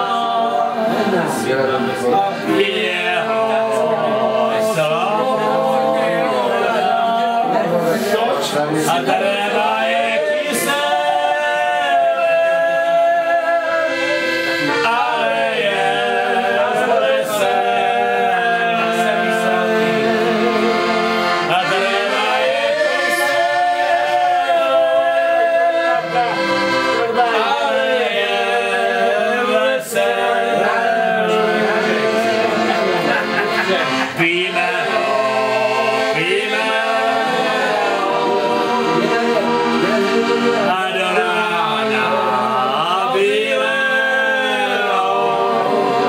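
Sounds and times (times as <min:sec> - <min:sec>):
accordion: 0:00.0 - 0:46.0
men singing: 0:00.0 - 0:46.0.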